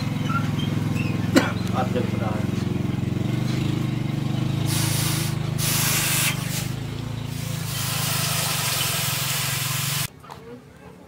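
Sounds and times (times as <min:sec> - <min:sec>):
hot blade hissing in water: 0:04.7 - 0:10.1.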